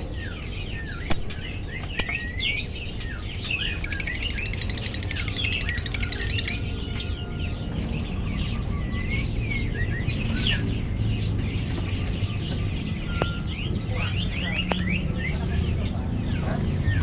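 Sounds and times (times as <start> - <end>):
lovebird chirping: 0.8 - 10.7.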